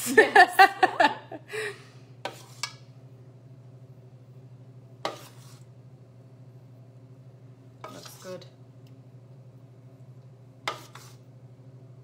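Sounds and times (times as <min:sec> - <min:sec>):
women laughing: 0:00.0 - 0:01.8.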